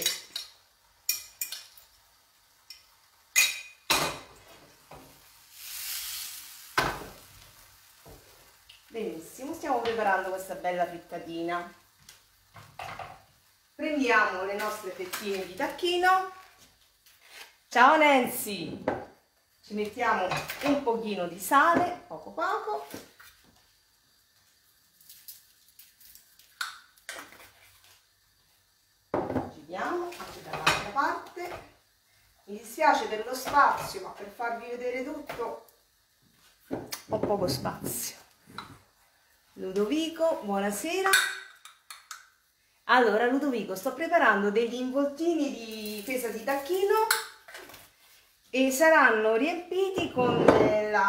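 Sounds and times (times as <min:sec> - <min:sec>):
egg sizzling in frying pan: 0:00.0 - 0:49.1.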